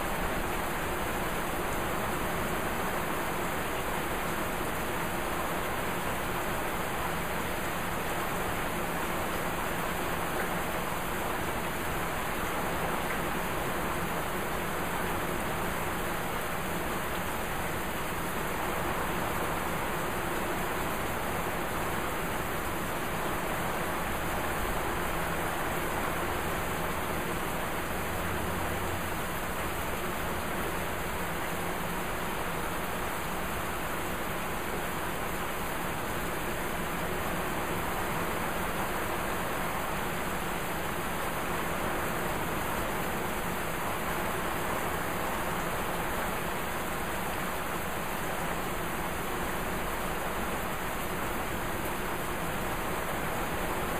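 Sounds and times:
heavy rain pouring: 0.0 - 53.9.

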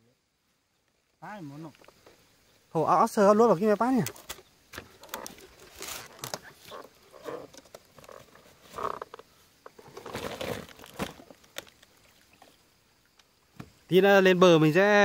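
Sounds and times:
plastic sack rustling: 4.2 - 6.8, 9.8 - 11.8.

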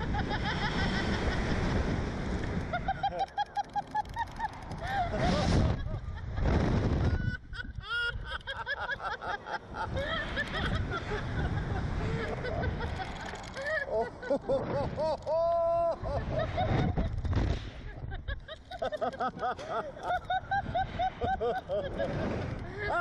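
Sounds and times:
wind rushing over microphone: 4.6 - 8.3, 15.8 - 18.4
man and woman laughing and shrieking: 7.0 - 17.2, 18.0 - 23.0.

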